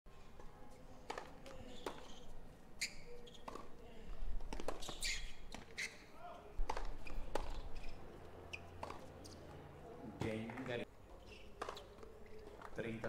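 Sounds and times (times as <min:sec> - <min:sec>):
tennis rackets striking ball: 0:01.1 - 0:02.2, 0:03.2 - 0:03.7, 0:04.4 - 0:05.8, 0:06.6 - 0:07.7, 0:08.7 - 0:09.1, 0:11.6 - 0:12.0.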